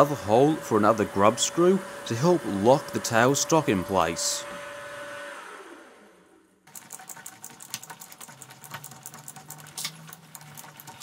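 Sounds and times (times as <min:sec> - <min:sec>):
drill spindle whine spinning down: 0:00.0 - 0:06.5.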